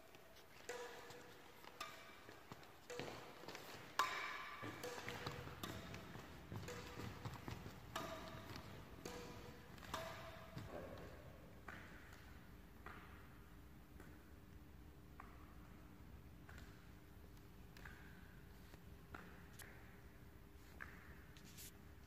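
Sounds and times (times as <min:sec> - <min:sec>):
racket hitting shuttlecock: 0:00.4 - 0:13.3.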